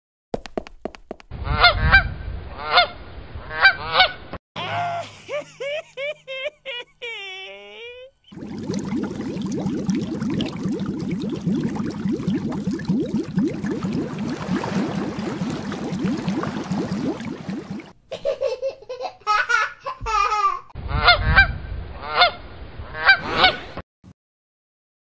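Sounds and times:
rushing splashing water: 8.3 - 17.9.

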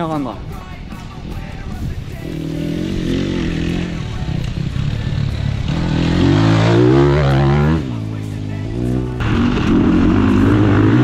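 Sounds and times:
dirt bike engine revving: 2.2 - 11.0.

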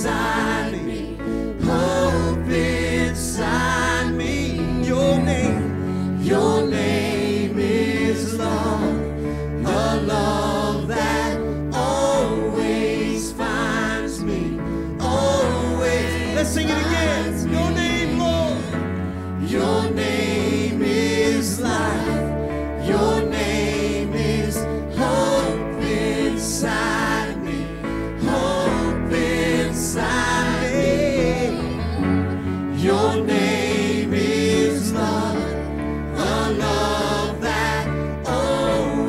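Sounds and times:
bass: 0.0 - 39.0
keyboard chords: 0.0 - 39.0
man singing into a microphone: 3.0 - 5.8, 15.0 - 18.8.

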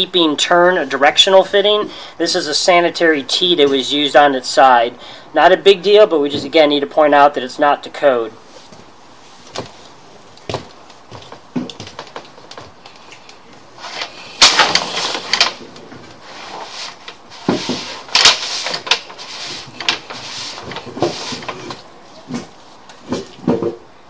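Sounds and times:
cable scraping in pipe: 13.8 - 21.8.

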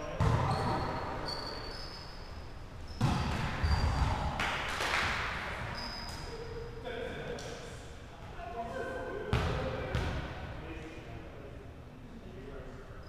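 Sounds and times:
sneakers squeaking on hardwood: 0.2 - 4.2, 5.6 - 6.4
volleyball smacks echoing in gym: 2.9 - 6.1.

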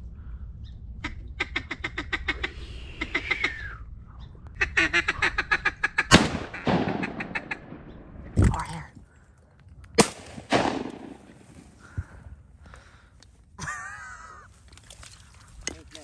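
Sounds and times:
ducks quacking: 1.0 - 3.7, 4.6 - 8.0
shotgun firing: 6.1 - 8.4, 10.0 - 11.5.

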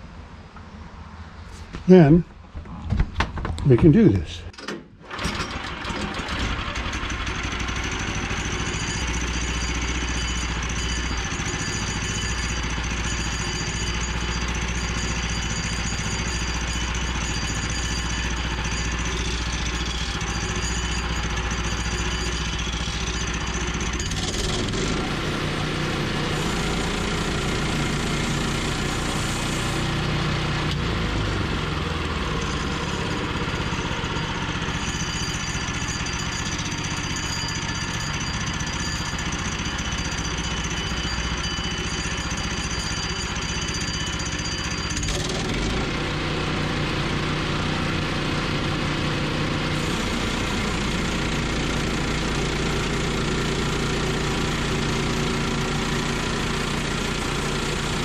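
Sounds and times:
band saw cutting log: 5.2 - 37.3, 49.7 - 58.0.

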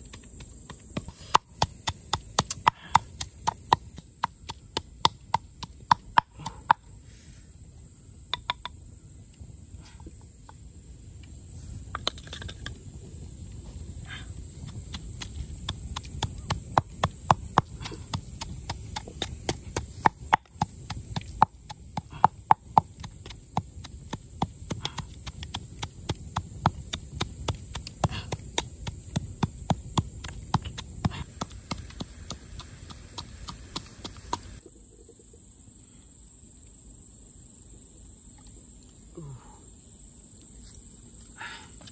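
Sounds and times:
pestle pounding in clay mortar: 0.0 - 6.9, 14.1 - 34.6.

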